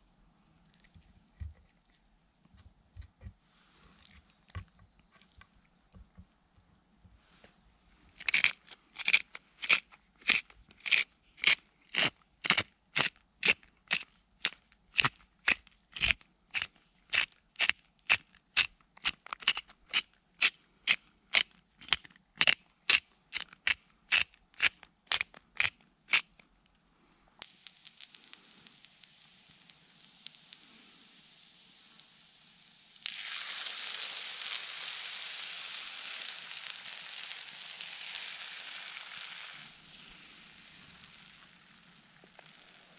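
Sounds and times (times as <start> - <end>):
spice mill grinding: 8.2 - 26.3, 27.5 - 42.9
oil sizzling in a pan: 27.4 - 42.9.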